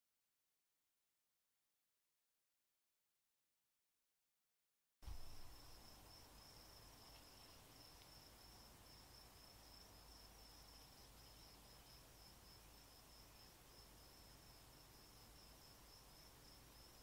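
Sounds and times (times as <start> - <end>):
low background hiss: 5.0 - 17.0.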